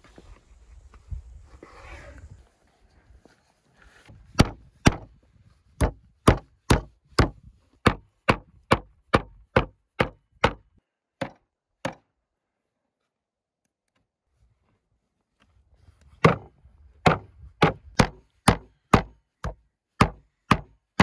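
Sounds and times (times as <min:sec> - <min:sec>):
meat mallet pounding meat: 0:17.1 - 0:21.0.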